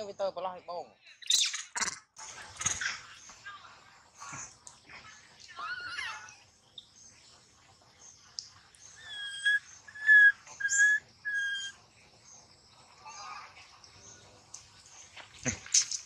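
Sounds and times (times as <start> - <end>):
high whistled calls: 8.9 - 11.8.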